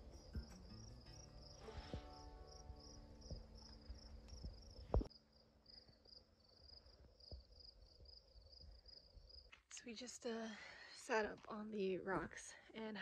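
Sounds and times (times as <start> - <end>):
insects chirping: 0.0 - 9.6.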